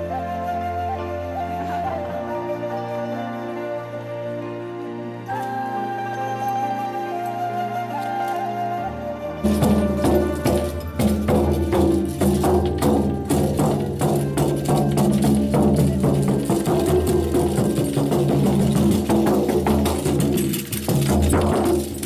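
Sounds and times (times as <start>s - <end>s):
frame drum beaten fast: 9.5s - 22.0s.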